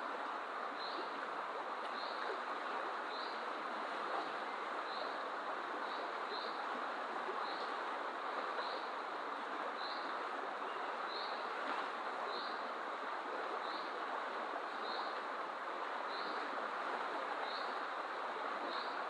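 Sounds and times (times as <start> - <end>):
fast-flowing river rushing: 0.0 - 19.0.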